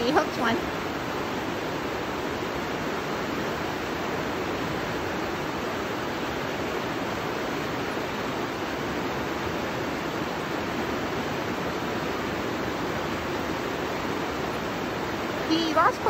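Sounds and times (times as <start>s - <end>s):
river rapids rushing: 0.0s - 16.0s.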